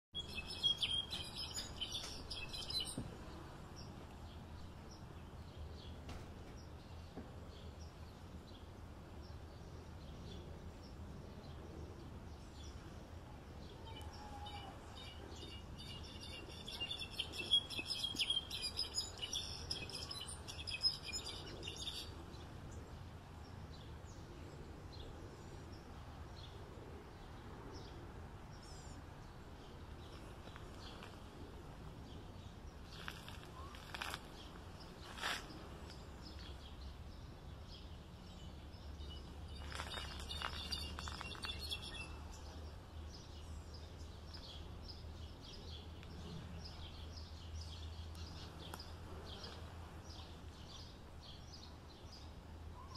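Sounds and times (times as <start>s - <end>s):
finch twittering chirps: 0.2s - 3.0s.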